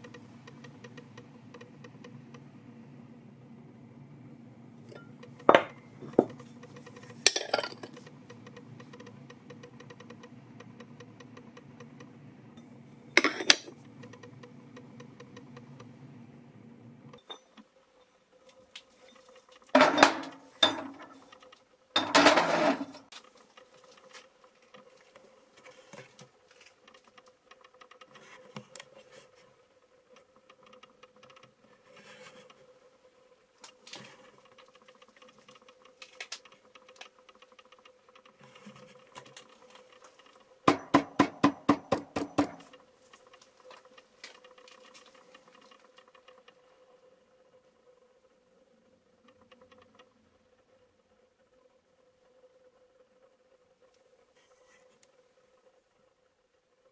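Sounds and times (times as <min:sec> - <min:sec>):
faint steady hum: 0:00.0 - 0:56.9
faint ticks: 0:08.0 - 0:12.2, 0:23.0 - 0:40.6, 0:42.7 - 0:56.3.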